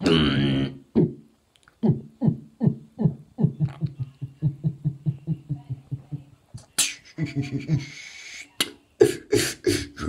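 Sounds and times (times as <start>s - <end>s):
beatboxing vocal hits: 0.0s - 4.0s, 6.6s - 7.8s, 8.6s - 10.0s.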